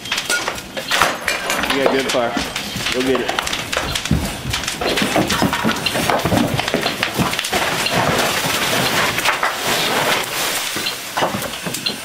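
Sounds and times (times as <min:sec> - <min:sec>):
fire hose water rushing hiss: 0:08.8 - 0:12.0.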